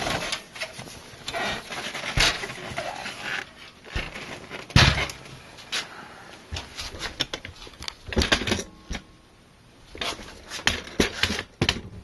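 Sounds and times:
clicks and knocks of computer case: 1.8s - 2.8s, 3.9s - 5.2s, 6.6s - 9.1s, 10.0s - 12.0s.

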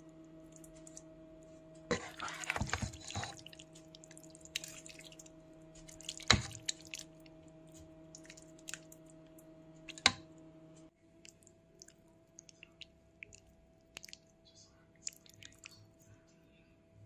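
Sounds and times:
electrical hum: 0.0s - 17.0s
spoon squelching in pasta: 1.9s - 7.4s, 8.1s - 9.1s, 11.2s - 14.3s, 15.0s - 16.0s.

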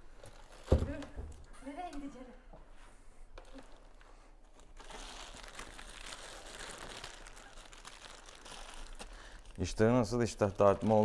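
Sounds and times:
plastic film crinkling: 0.2s - 1.1s, 3.4s - 11.0s.

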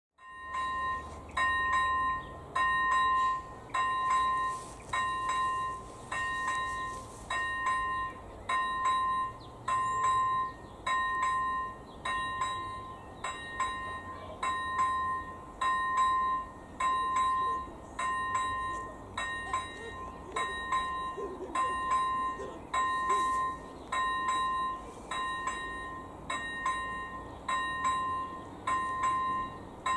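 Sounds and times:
level crossing warning bell: 0.2s - 29.9s.

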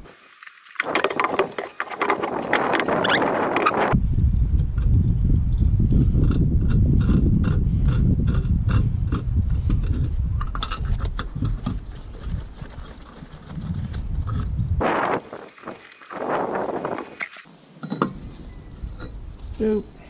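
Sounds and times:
steady low rumble: 3.9s - 10.8s.

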